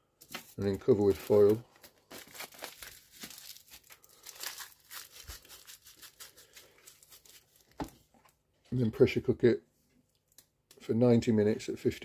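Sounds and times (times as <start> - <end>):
aluminium foil crinkling: 0.3 - 8.3.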